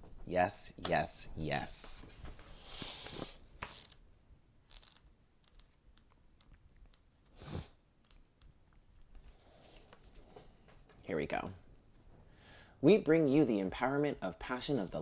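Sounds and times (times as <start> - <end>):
card rustling on tabletop: 1.8 - 4.0, 4.7 - 6.1, 9.1 - 10.9.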